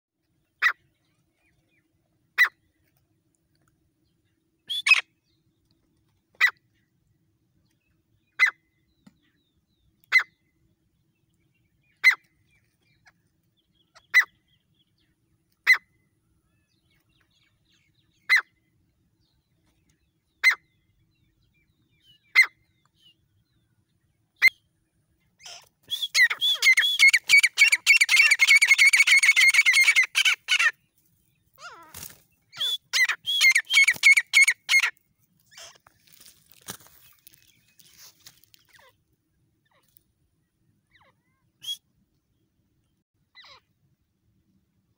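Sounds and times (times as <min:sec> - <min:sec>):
francolin calls: 0:25.4 - 0:30.8, 0:31.6 - 0:34.9.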